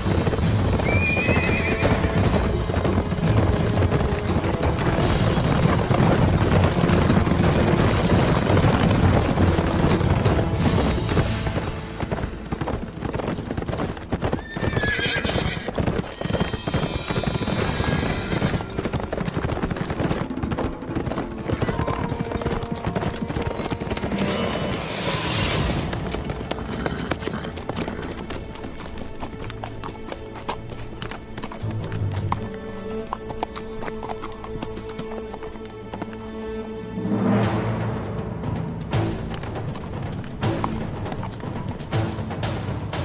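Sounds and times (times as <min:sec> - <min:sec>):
dramatic background music: 0:00.0 - 0:43.0
horses galloping: 0:00.0 - 0:43.0
horse whinnying: 0:00.6 - 0:02.8, 0:14.3 - 0:19.1, 0:21.5 - 0:28.3.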